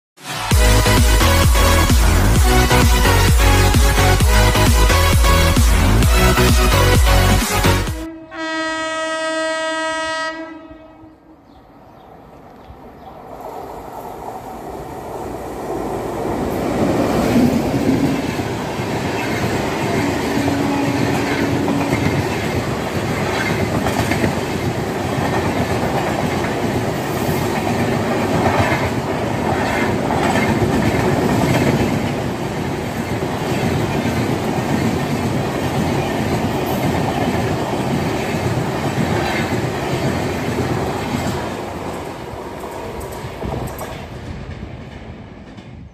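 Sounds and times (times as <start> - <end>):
train passing at speed: 0.2 - 45.9
train horn long note: 0.3 - 11.5, 20.0 - 22.2.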